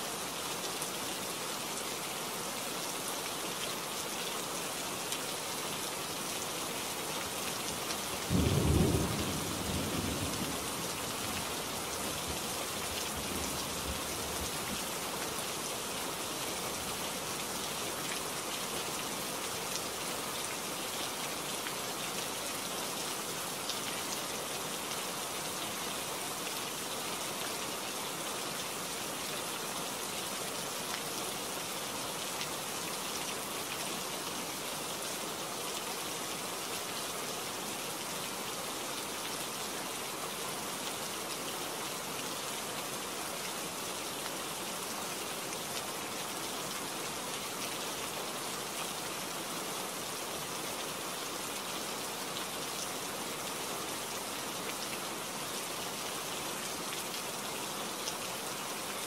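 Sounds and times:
rain hissing: 5.0 - 18.6.

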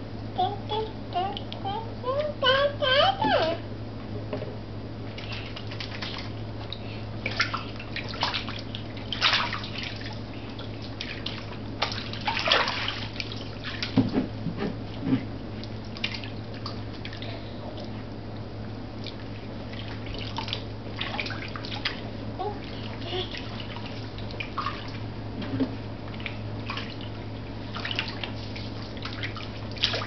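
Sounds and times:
steady low hum: 0.0 - 30.0
bathwater splashing and dripping: 5.1 - 14.3, 15.5 - 18.0, 18.9 - 25.1, 26.0 - 30.0.

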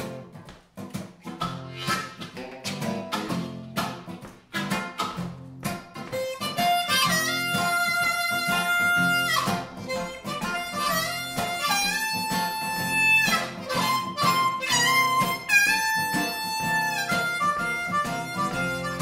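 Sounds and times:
electric guitar: 0.0 - 19.0
strummed acoustic guitar: 0.0 - 19.0
harmonica melody: 1.5 - 2.3, 5.9 - 19.0.

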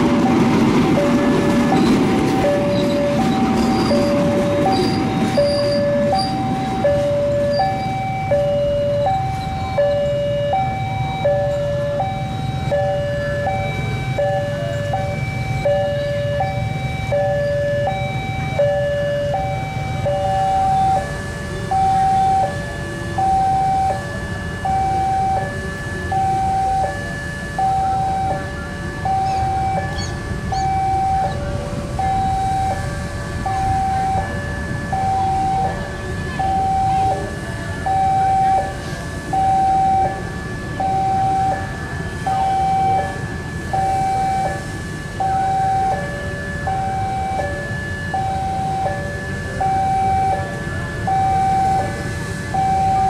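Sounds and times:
low rumble of passing train: 0.0 - 53.0
two-tone level crossing alarm: 0.0 - 53.0.

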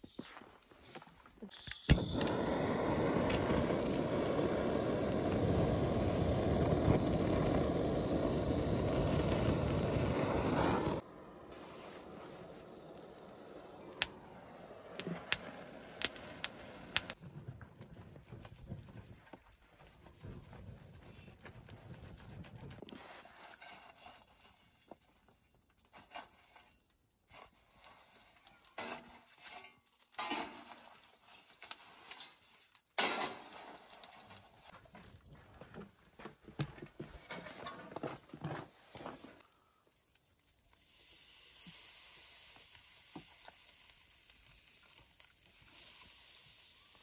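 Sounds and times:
hissing: 1.5 - 17.2
faint steady hiss: 39.0 - 47.0.

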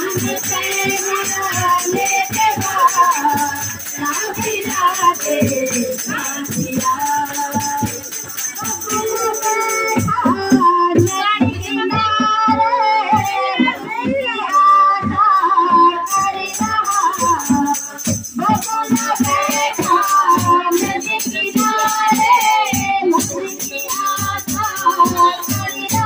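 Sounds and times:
group singing folk song: 0.0 - 26.0
rattling percussion: 0.0 - 26.0
steady drum beat: 0.0 - 26.0.

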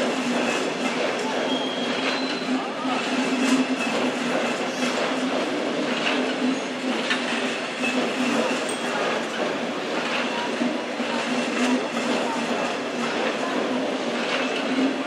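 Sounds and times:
train running noise: 0.0 - 15.0
high wheel squeals: 1.5 - 2.6
wheels clicking over rail joints: 3.4 - 15.0.

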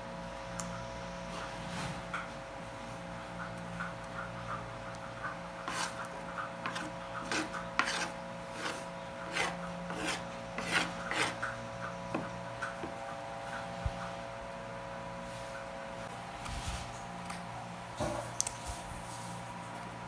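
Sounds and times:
steady hum: 0.0 - 20.0
short rasping scrapes: 5.6 - 6.0, 6.6 - 11.5.

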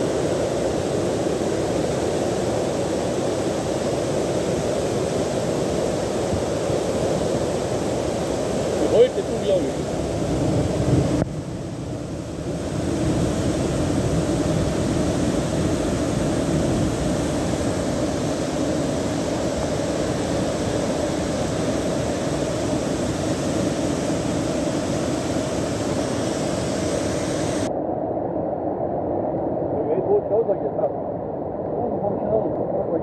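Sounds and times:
floodwater rushing in stream: 12.2 - 27.7.

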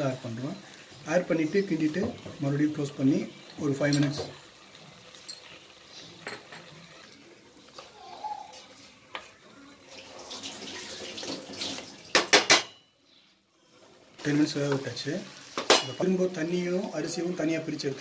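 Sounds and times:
spoon knocking against pot: 12.1 - 12.8.

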